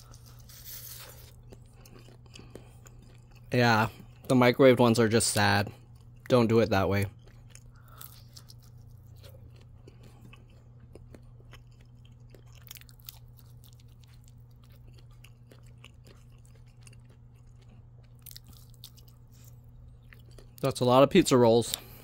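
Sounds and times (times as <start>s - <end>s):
chewing mouth clicks: 0.0s - 4.3s, 7.1s - 20.6s
steady low hum: 0.0s - 22.0s.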